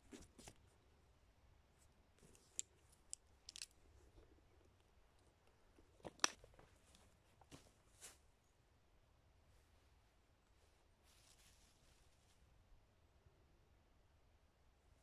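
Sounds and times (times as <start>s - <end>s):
clothing rustling: 6.0s - 8.3s, 9.6s - 12.5s.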